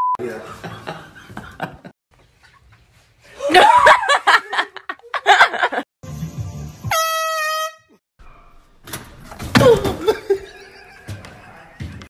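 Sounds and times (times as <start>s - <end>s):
air horn blast: 6.8s - 8.0s.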